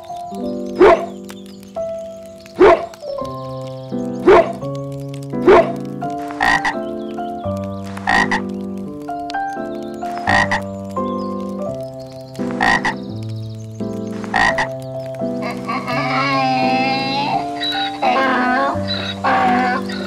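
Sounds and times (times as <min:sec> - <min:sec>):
soft piano music: 0:00.0 - 0:20.0
frog croaking: 0:00.7 - 0:01.2, 0:02.5 - 0:08.6, 0:10.0 - 0:11.1, 0:12.3 - 0:13.1, 0:13.8 - 0:20.0
dog barking: 0:00.8 - 0:01.2, 0:02.6 - 0:03.0, 0:04.2 - 0:04.6, 0:05.4 - 0:05.8.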